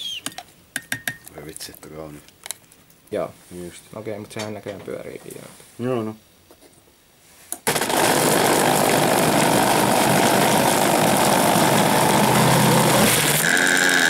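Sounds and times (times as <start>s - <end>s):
blender motor running: 7.7s - 14.0s.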